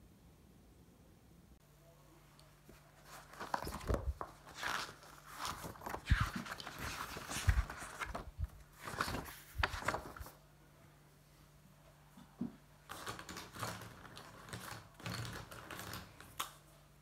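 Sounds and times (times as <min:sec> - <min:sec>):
soft thumps of pages: 0:02.6 - 0:10.4
notebook pages turning: 0:02.7 - 0:10.4, 0:12.9 - 0:16.4.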